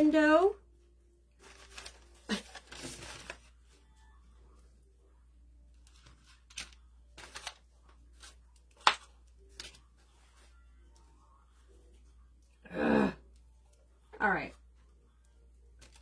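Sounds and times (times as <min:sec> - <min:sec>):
rustling dried greenery: 0:01.4 - 0:03.7.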